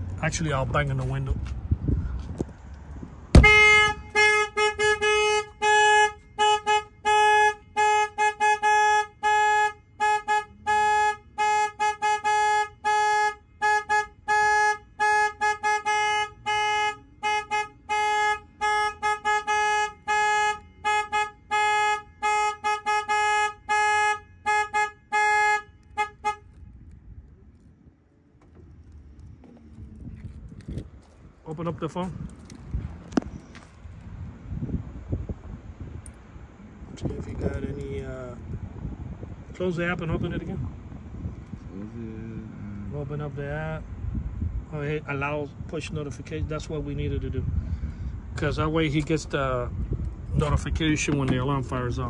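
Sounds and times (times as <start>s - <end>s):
truck horn honking: 3.3s - 26.8s.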